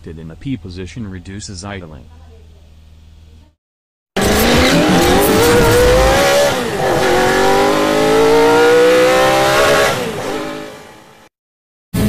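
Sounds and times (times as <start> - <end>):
racing car engine accelerating: 4.2 - 11.3.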